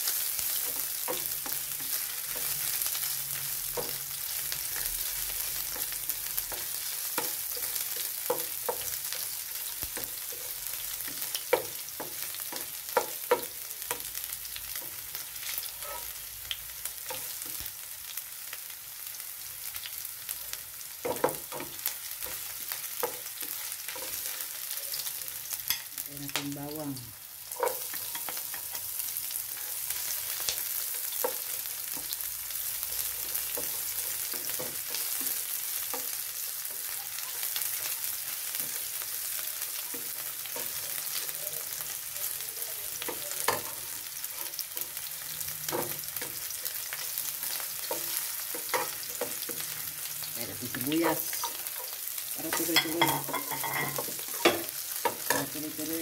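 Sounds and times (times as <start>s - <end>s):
spatula scraping wok: 0.0s - 17.6s, 42.9s - 56.0s
ginger sizzling in hot oil: 0.0s - 56.0s.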